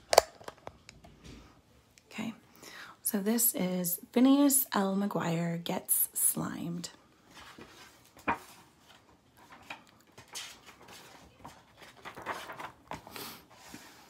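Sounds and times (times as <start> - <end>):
book pages rustling: 7.2 - 14.0.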